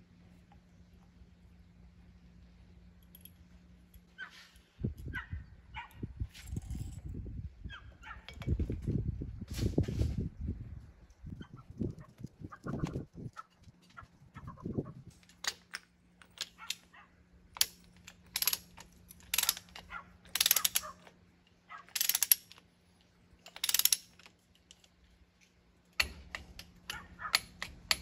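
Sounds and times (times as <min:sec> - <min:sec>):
ratchet wrench clicking: 0:17.6 - 0:21.1, 0:21.9 - 0:22.6, 0:23.4 - 0:24.8, 0:26.0 - 0:28.0.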